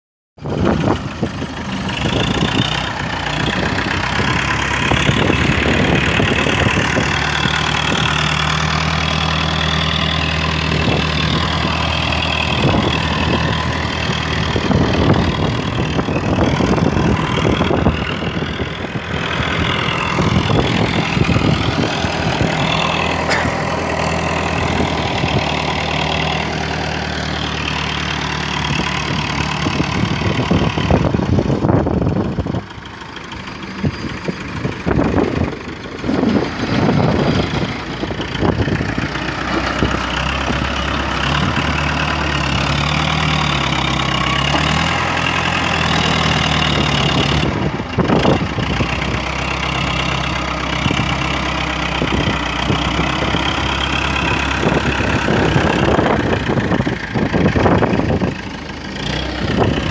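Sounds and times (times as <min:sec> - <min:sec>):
loader diesel engine running: 0:00.4 - 0:59.9.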